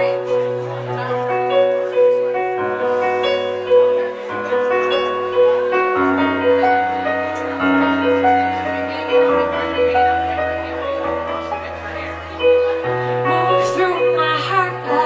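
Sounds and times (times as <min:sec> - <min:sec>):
keyboard playing slow piano song: 0:00.0 - 0:15.0.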